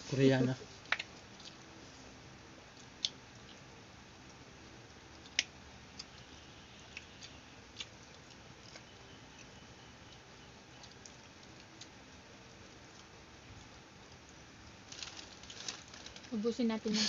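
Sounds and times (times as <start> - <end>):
low steady hiss: 0.0 - 17.0
fingers and food on plates: 0.7 - 1.8, 2.6 - 16.2
chewing smacks and clicks: 0.8 - 1.7, 2.7 - 3.7, 5.0 - 6.3, 6.9 - 12.0.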